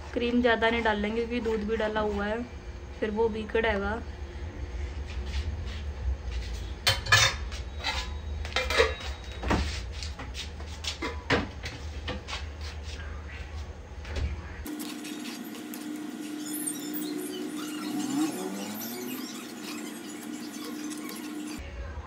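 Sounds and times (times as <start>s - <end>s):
steady low hum: 0.0s - 9.0s
metal spoon scraping a pot: 14.7s - 21.6s.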